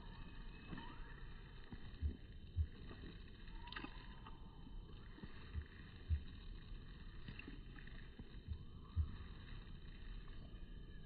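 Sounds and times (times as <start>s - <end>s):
faint background noise: 0.0s - 11.0s
dull low thumps: 2.0s - 3.0s, 5.4s - 6.8s, 8.2s - 9.6s.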